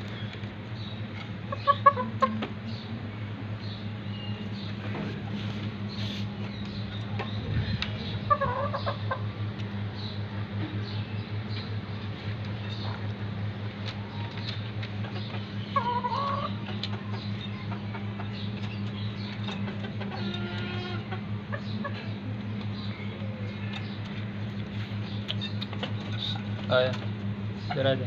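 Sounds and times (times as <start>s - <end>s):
steady low hum: 0.0s - 28.0s
chickens clucking: 1.1s - 2.8s, 4.6s - 11.0s, 13.8s - 28.0s.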